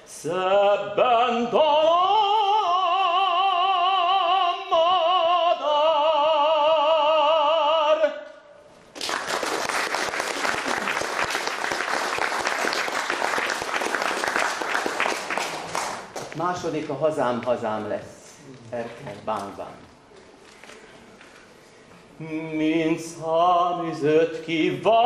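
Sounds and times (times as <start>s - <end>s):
man singing with vibrato: 0.0s - 8.7s, 22.1s - 25.0s
audience applause: 9.0s - 16.3s.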